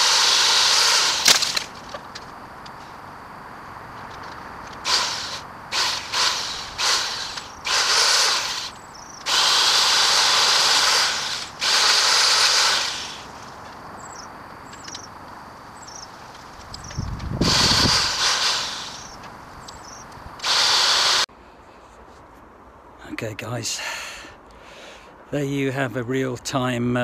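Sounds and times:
electric pole saw running: 0.0s - 1.8s, 4.8s - 13.3s, 17.3s - 19.2s, 20.4s - 21.3s.

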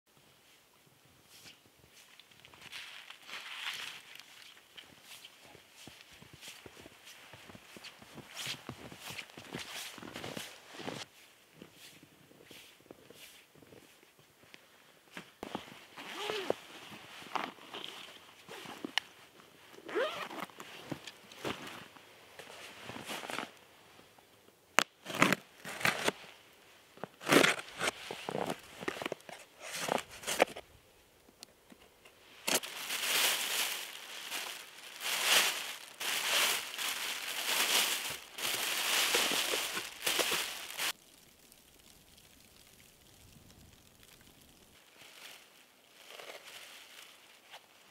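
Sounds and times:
plastic bag crinkling: 32.5s - 42.7s.

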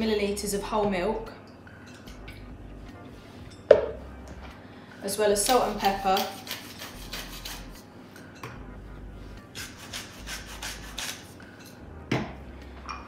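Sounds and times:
pepper mill grinding: 5.4s - 7.8s, 9.6s - 11.3s.

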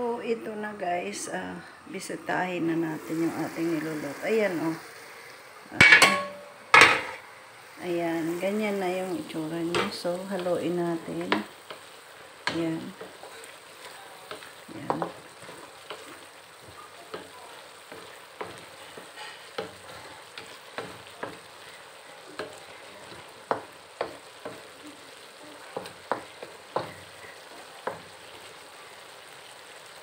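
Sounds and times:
sauce sizzling: 0.4s - 30.0s
spatula knocking and scraping wok: 5.7s - 7.2s, 9.6s - 28.6s.

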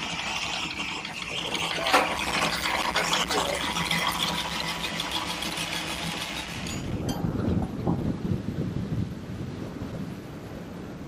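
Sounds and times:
anchor chain rattling: 4.7s - 7.2s.

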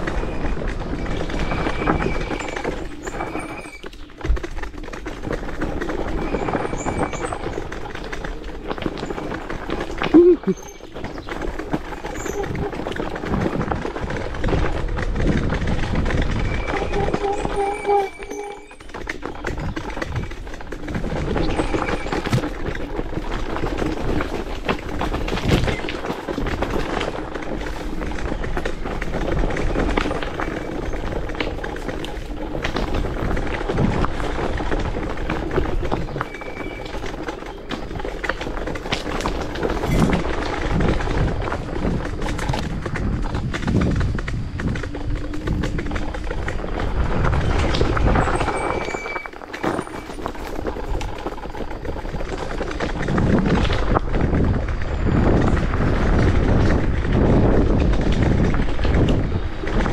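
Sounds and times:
scooter rattling over dirt track: 0.0s - 59.9s.

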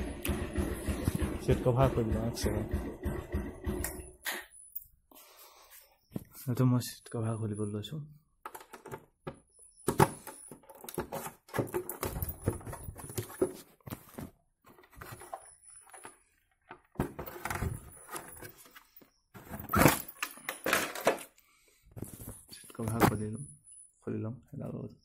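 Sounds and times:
clicks knocks and scraping: 8.4s - 21.4s.

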